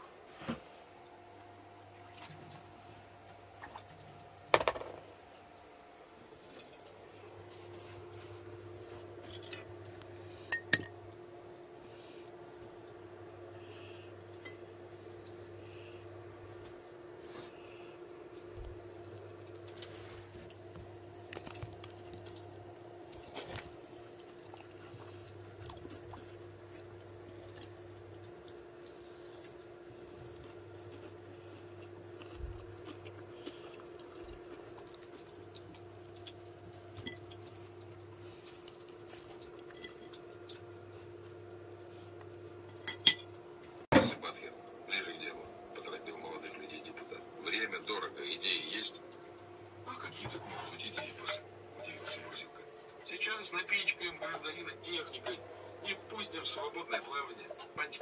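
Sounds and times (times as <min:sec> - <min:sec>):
steady low hum: 0:00.0 - 0:58.0
fork clinking on plate: 0:10.6 - 0:10.9.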